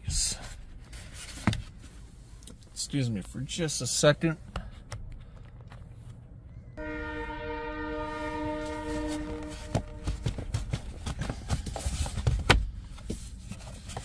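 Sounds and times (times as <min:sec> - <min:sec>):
train horn blast: 0:06.8 - 0:10.5.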